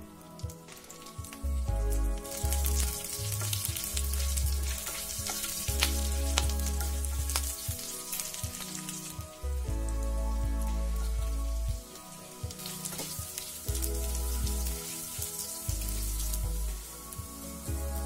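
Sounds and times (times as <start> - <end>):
spices sizzling in hot fat: 0.0 - 18.0
wooden spatula stirring crackles: 0.0 - 18.0.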